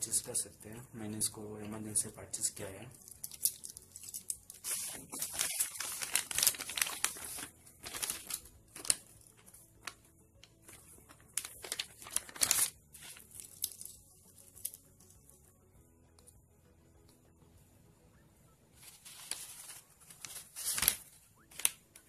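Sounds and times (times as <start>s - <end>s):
plastic wrapping crinkling: 2.9s - 14.9s, 18.8s - 22.0s.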